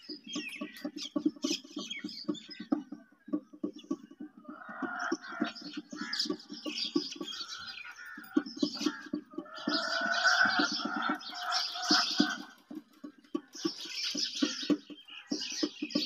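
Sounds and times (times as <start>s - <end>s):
bird calls and chirps: 0.0s - 16.0s
chickens clucking: 0.1s - 16.0s.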